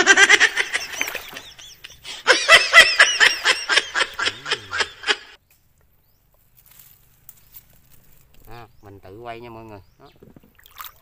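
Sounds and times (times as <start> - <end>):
person laughing: 0.0 - 5.4.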